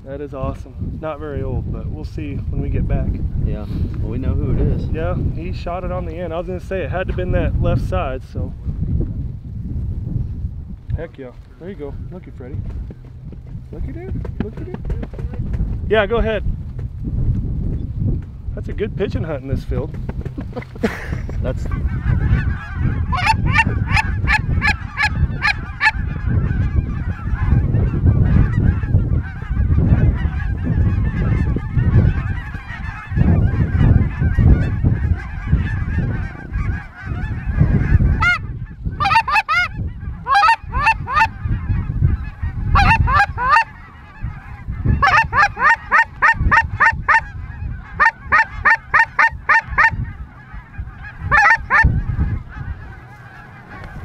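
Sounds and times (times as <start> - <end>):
wind rumble on microphone: 0.0 - 54.0
geese honking: 21.4 - 54.0.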